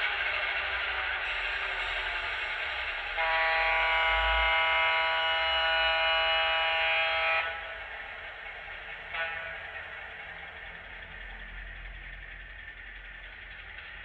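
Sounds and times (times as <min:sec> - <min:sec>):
model train rolling on track: 0:00.0 - 0:14.0
diesel air horn blast: 0:01.2 - 0:08.2, 0:09.0 - 0:10.2.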